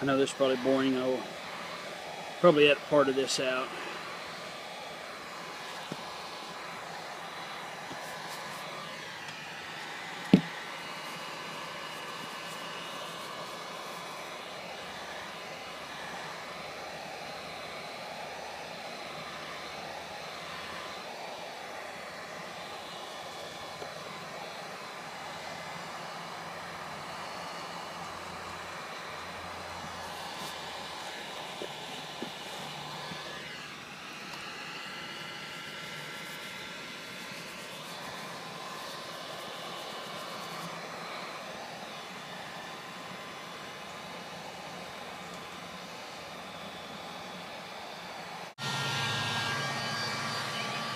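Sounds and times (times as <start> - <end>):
heat gun hissing: 0.0 - 50.9.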